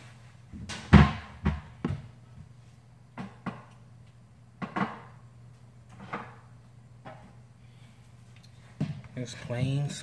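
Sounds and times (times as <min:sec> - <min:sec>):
kitchen items knocking on countertop: 0:04.6 - 0:05.1.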